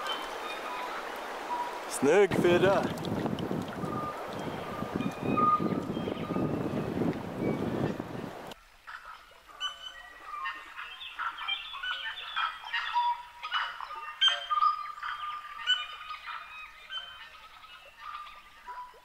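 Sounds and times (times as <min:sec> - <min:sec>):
forest birds singing: 0:00.0 - 0:19.0.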